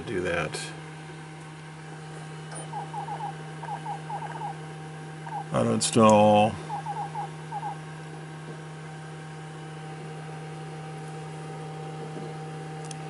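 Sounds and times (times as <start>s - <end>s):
low electrical hum: 0.0s - 13.0s
thin high steady tone: 2.5s - 4.6s.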